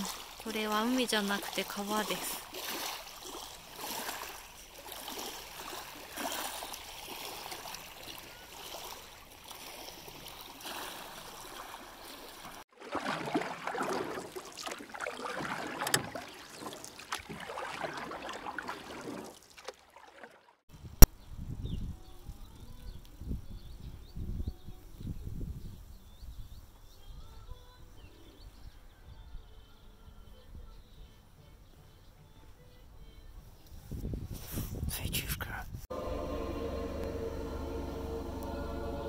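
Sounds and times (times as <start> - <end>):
small waves lapping at shore: 0.0 - 20.6.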